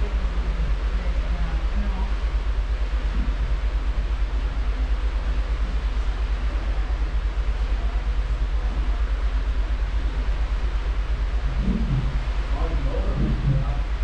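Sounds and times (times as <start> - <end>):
ship wake rushing: 0.0 - 14.0
wind buffeting microphone: 10.4 - 14.0.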